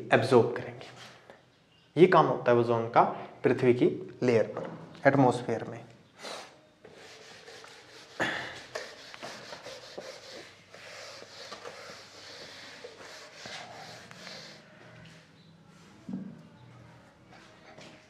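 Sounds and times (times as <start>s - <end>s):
eraser rubbing on whiteboard: 6.9s - 15.3s.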